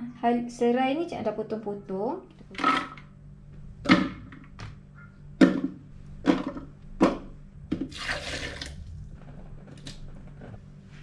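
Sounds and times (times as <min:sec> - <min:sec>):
water pouring into jar: 0:07.8 - 0:09.1.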